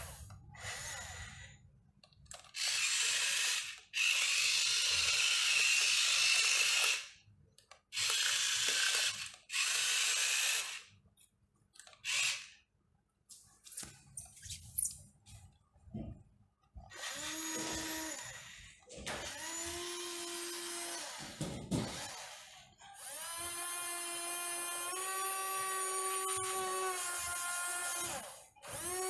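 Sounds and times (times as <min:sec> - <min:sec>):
small electric motors whirring: 0:00.0 - 0:01.6, 0:02.3 - 0:07.2, 0:07.9 - 0:10.9, 0:11.8 - 0:12.6, 0:16.9 - 0:29.0.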